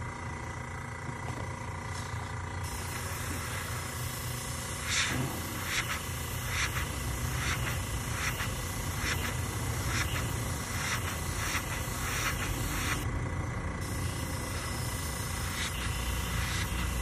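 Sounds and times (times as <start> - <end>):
low hum of air supply: 0.0 - 17.0
airbrush hissing: 2.6 - 13.1, 13.8 - 17.0.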